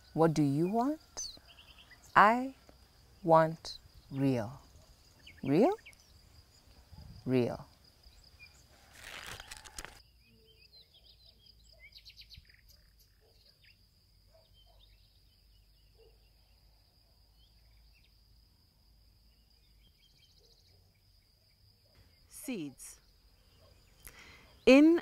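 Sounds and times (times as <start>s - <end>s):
insects droning: 0.0s - 25.0s
soft bird chirps: 1.0s - 2.7s, 8.0s - 18.2s, 19.2s - 24.7s
brief rustle: 8.8s - 10.0s.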